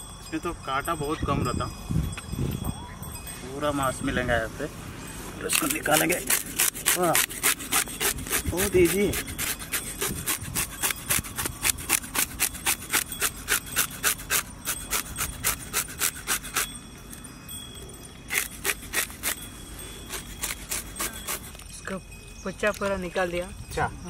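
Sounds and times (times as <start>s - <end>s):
knife scraping fish scales: 5.5s - 16.7s, 18.3s - 21.7s.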